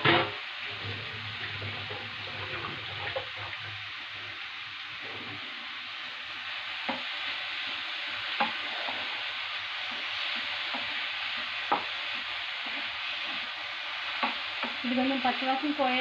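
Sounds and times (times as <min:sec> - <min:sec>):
vegetable sizzling in frying pan: 0:00.0 - 0:16.0
wooden spatula knocking pan: 0:06.8 - 0:07.1, 0:08.3 - 0:09.1, 0:09.9 - 0:13.5, 0:14.1 - 0:14.8.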